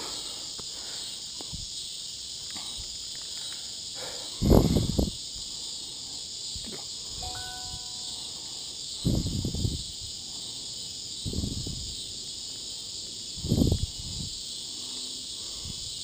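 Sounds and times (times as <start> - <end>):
insect chorus buzzing: 0.0 - 16.0
short electronic beep: 7.2 - 8.2.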